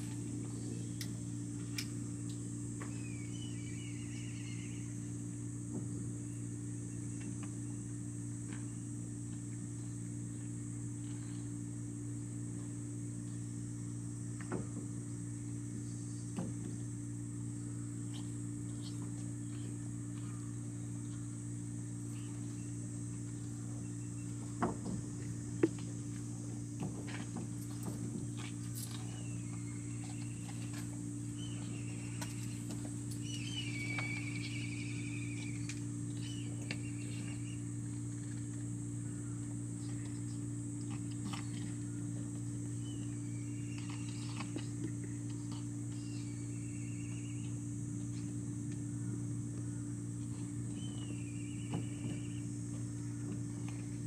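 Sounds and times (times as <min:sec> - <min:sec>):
low mechanical hum: 0:00.0 - 0:54.0
birds chirping: 0:02.8 - 0:04.9, 0:28.9 - 0:37.7, 0:42.6 - 0:44.6, 0:45.5 - 0:48.3, 0:49.0 - 0:52.6.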